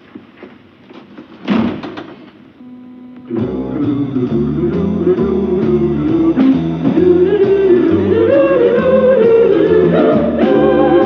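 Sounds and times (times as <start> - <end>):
theme music with bass line: 3.4 - 11.0.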